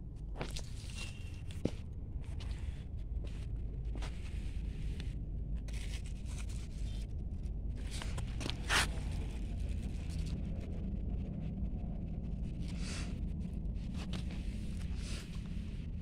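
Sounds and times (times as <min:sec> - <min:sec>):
steady low rumble: 0:00.0 - 0:16.0
leaves rustling and scraping: 0:07.8 - 0:10.3.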